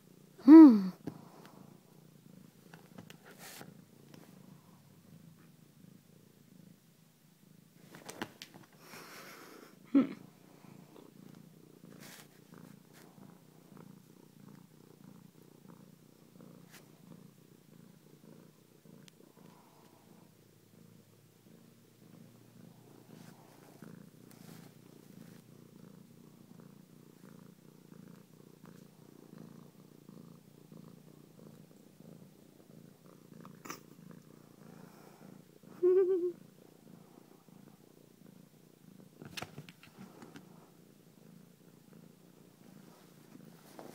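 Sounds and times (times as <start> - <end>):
cat purring: 0.0 - 43.9.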